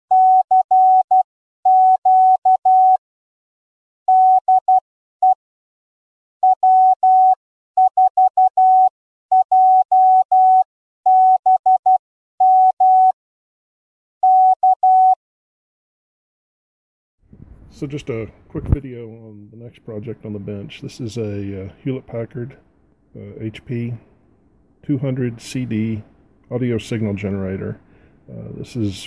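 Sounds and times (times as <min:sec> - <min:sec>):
morse code tone: 0:00.1 - 0:03.0, 0:04.1 - 0:05.4, 0:06.4 - 0:13.2, 0:14.2 - 0:15.2.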